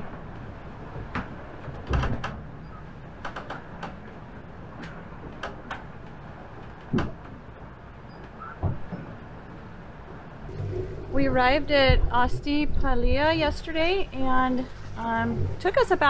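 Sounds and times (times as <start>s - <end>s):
clicks and knocks of doors: 1.0s - 2.5s, 6.7s - 7.4s, 8.2s - 9.2s
steady low rumble: 8.8s - 16.0s.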